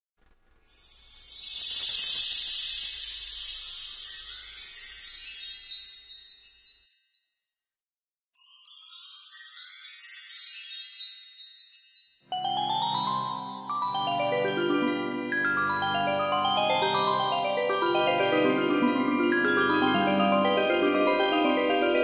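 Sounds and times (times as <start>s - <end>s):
magic sparkle tinkling shimmer: 0.6s - 7.2s, 8.4s - 12.7s, 21.4s - 22.0s
twinkling cascade: 0.7s - 7.0s, 21.4s - 22.0s.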